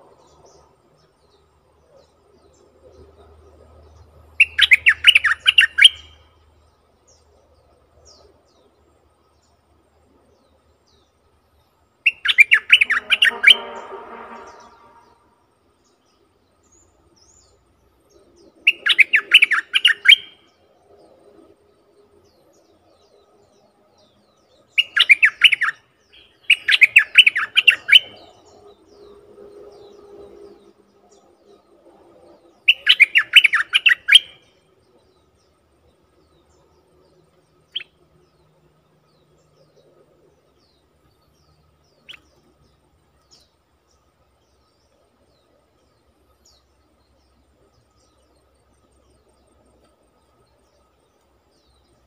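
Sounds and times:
bird singing bubbly phrases: 0:04.3 - 0:06.2, 0:12.0 - 0:13.8, 0:18.1 - 0:20.5, 0:24.6 - 0:29.2, 0:32.6 - 0:34.4.

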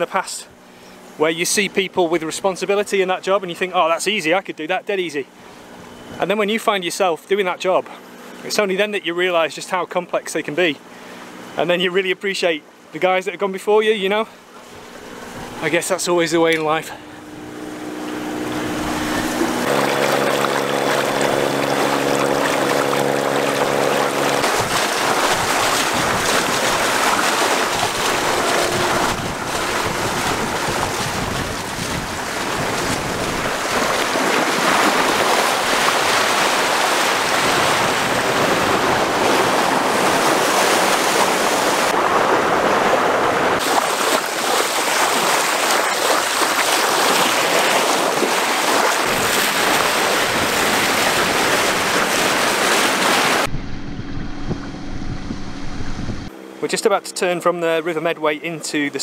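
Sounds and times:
water splashing along hull: 0:14.1 - 0:59.0
steady hum: 0:14.3 - 0:42.0, 0:53.4 - 0:58.1
wind buffeting microphone: 0:17.1 - 0:43.9, 0:53.3 - 0:56.3.

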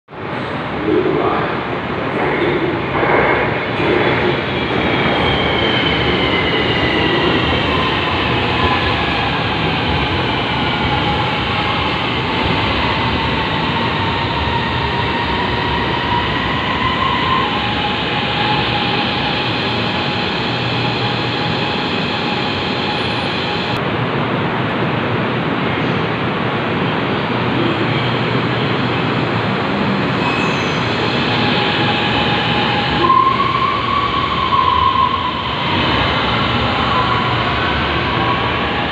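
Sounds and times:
train braking to a stop: 0:30.1 - 0:38.9.

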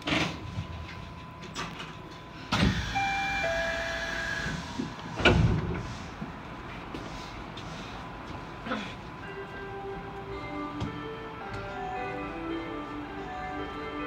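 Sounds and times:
sliding doors rush: 0:04.3 - 0:06.4.

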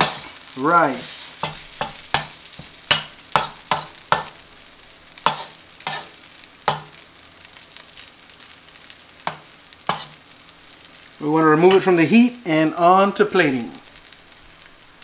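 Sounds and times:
metal spatula scraping wok: 0:00.0 - 0:04.4, 0:05.2 - 0:07.0, 0:09.2 - 0:10.2
faint sizzle: 0:00.0 - 0:15.0.

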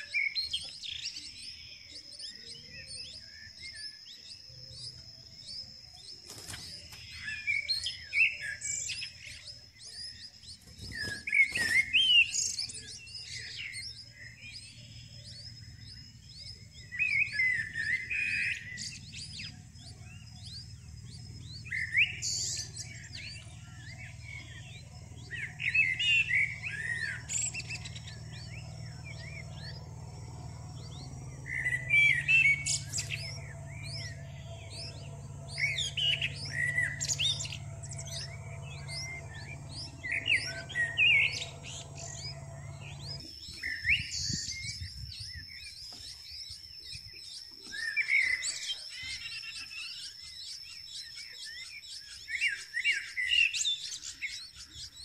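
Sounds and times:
nestlings chirping shrilly: 0:10.6 - 0:12.0.

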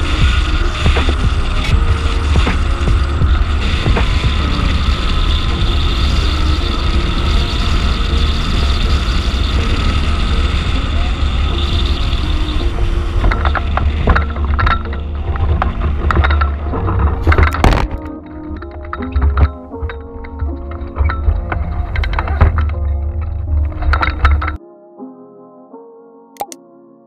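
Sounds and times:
wind buffeting microphone: 0:00.0 - 0:24.6
sharp clicks and knocks: 0:11.7 - 0:24.6.

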